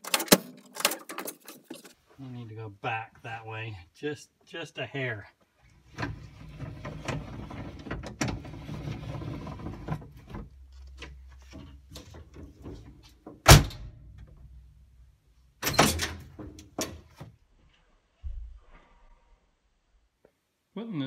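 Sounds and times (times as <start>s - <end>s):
clicks and metal rattles: 0.0s - 2.0s, 15.6s - 17.2s.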